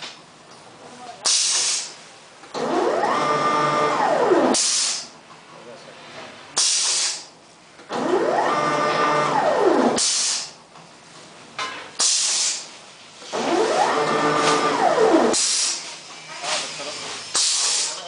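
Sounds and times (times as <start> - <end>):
pneumatic air hisses: 1.2 - 2.0, 4.5 - 5.2, 6.6 - 7.3, 10.0 - 10.6, 12.0 - 13.5, 15.3 - 18.0
motor whining: 2.6 - 5.0, 7.9 - 10.0, 13.3 - 15.8.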